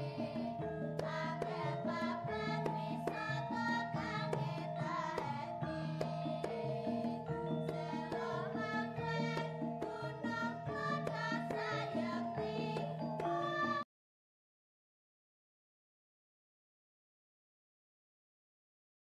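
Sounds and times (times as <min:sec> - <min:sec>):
melody over percussion: 0:00.0 - 0:13.8.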